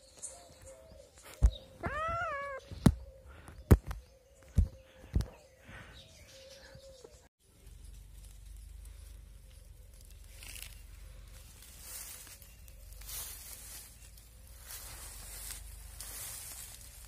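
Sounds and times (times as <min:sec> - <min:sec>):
kitten meowing: 0:01.8 - 0:02.7.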